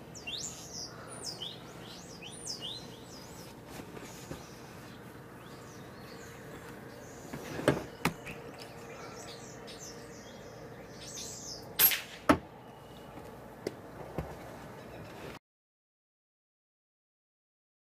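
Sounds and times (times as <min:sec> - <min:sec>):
small birds chirping: 0:00.0 - 0:11.8
air rifle shot crack: 0:11.8 - 0:12.4.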